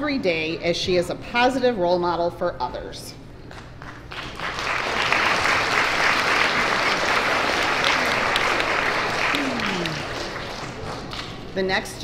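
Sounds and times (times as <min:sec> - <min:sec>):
children applauding: 0:04.1 - 0:11.2.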